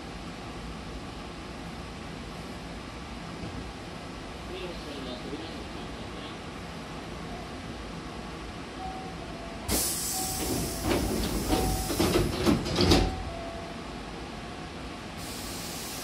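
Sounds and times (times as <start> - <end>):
pneumatic hiss: 9.7 - 12.6, 15.2 - 16.0
train doors sliding shut: 9.7 - 13.4.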